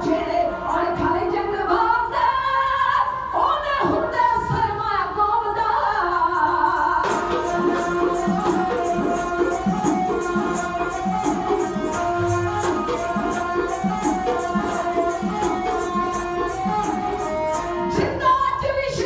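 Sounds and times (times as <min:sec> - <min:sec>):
sarangi: 0:00.0 - 0:19.0
women singing: 0:00.0 - 0:19.0
rhythmic drum strokes: 0:07.0 - 0:18.4.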